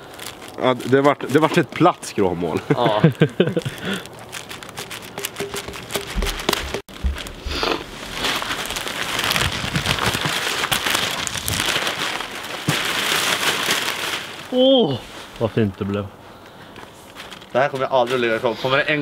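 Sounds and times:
plastic bag rustling: 0.0s - 15.4s, 16.8s - 18.5s.

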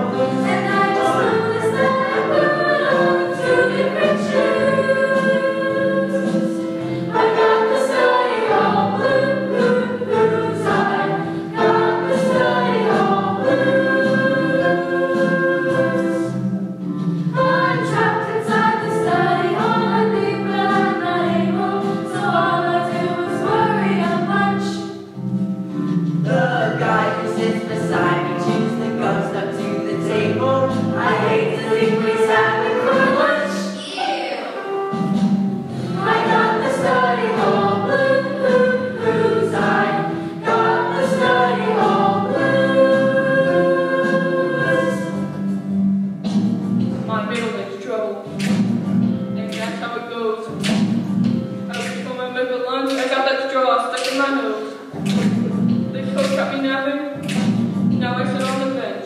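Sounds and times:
choir of children singing: 0.0s - 16.5s, 17.3s - 25.0s, 26.3s - 34.8s, 35.8s - 45.6s.

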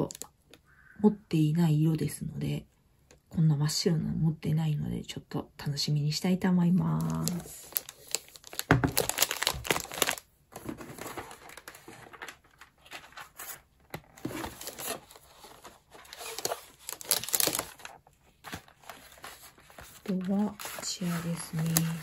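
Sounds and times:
paper and cardboard crinkling: 7.0s - 22.0s.

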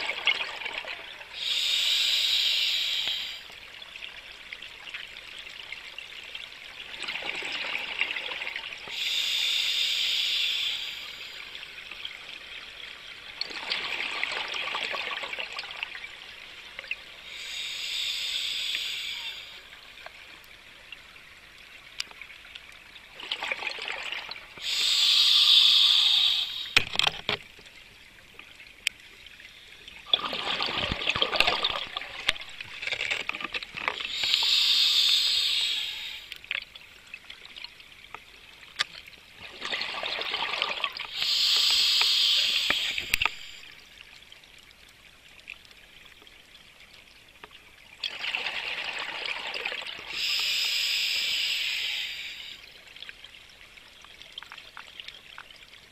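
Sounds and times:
diver breathing through regulator: 1.4s - 3.5s, 8.9s - 11.4s, 17.2s - 19.7s, 24.6s - 26.8s, 34.1s - 36.3s, 41.1s - 43.6s, 50.1s - 52.6s
rush of bubbles: 13.4s - 15.9s, 23.2s - 27.0s, 30.1s - 36.3s, 39.4s - 43.8s, 48.0s - 52.8s.

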